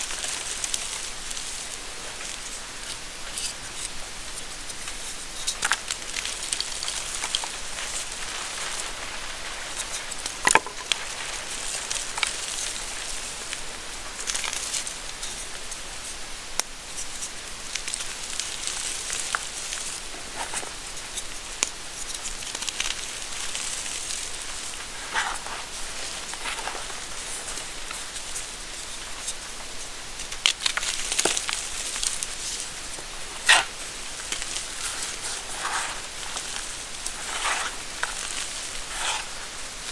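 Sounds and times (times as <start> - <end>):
chalk crunches and snaps: 0.0 - 15.8, 16.6 - 39.9
chalk crumbling in hands: 30.2 - 39.9.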